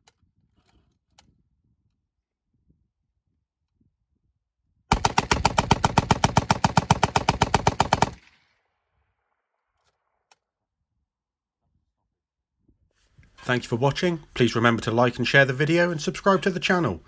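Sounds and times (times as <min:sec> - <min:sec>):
machine gun firing burst: 0:04.9 - 0:08.2.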